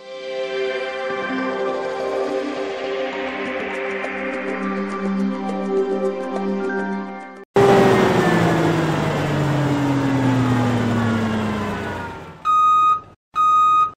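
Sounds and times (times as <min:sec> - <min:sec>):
vehicle reversing beeper: 0:07.6 - 0:14.0.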